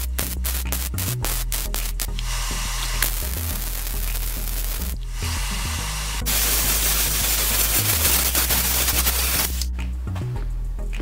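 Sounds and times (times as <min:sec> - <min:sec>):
welder arc crackling: 0:00.0 - 0:09.7
background music with bass: 0:00.0 - 0:11.0.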